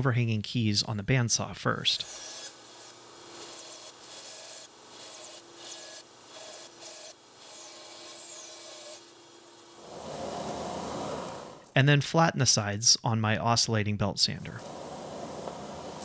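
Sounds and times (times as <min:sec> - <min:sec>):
bandsaw rasping through wood: 0:02.0 - 0:09.0
bandsaw motor humming: 0:02.0 - 0:11.7.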